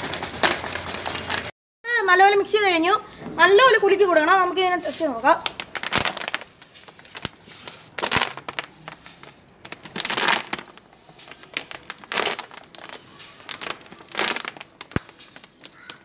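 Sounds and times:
plastic bottle crumpling: 0:04.8 - 0:16.0
spray bursts: 0:10.7 - 0:11.6.

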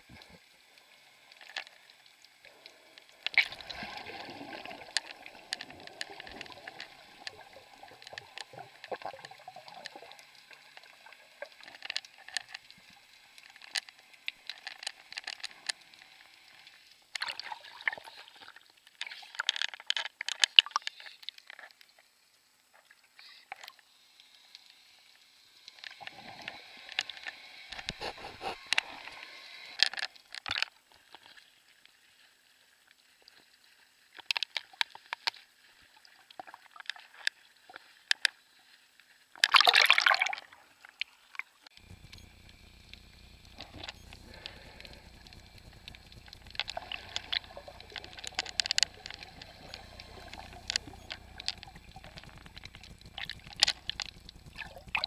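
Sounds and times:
underwater water sloshing and bubbling: 0:00.0 - 0:55.0
water splashes: 0:02.6 - 0:12.9
fizzing bubble noise: 0:43.6 - 0:55.0.

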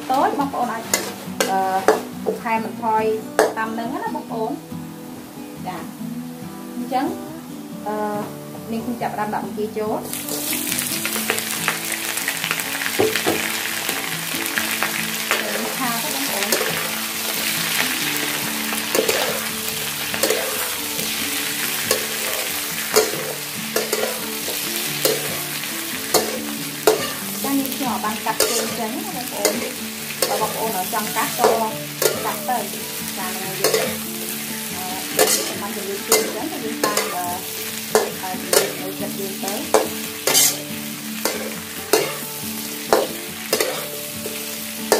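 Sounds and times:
shrimp sizzling in hot oil: 0:00.0 - 0:44.9
metal ladle scraping wok: 0:00.3 - 0:02.4, 0:12.1 - 0:44.9.

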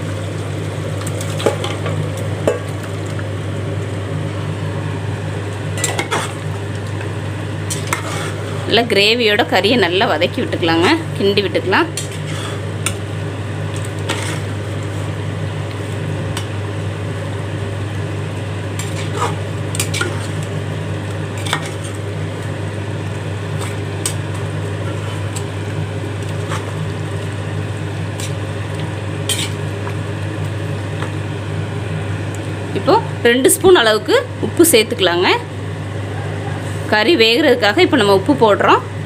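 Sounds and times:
steady low hum: 0:00.0 - 0:39.0
metal ladle scraping a pot: 0:07.7 - 0:08.7, 0:12.0 - 0:12.6, 0:14.0 - 0:14.5, 0:18.8 - 0:20.4, 0:29.3 - 0:29.6.

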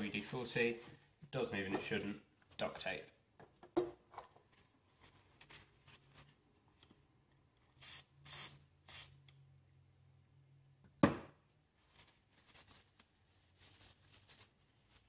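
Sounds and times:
aerosol can spraying: 0:07.8 - 0:09.2.

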